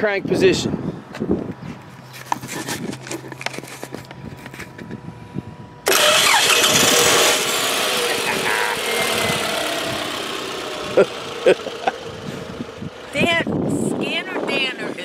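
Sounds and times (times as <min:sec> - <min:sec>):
car engine cranking and starting: 0:05.8 - 0:13.5
car engine running: 0:05.8 - 0:15.0.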